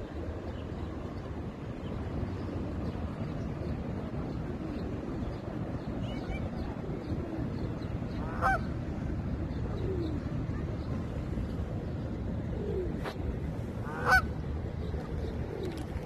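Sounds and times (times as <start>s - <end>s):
steady low rumble: 0.0s - 16.0s
geese honking: 8.2s - 8.6s, 13.8s - 14.2s.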